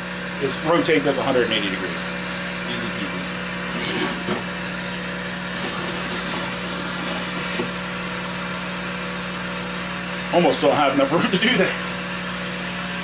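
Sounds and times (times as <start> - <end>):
electric motor hum: 0.0 - 10.2.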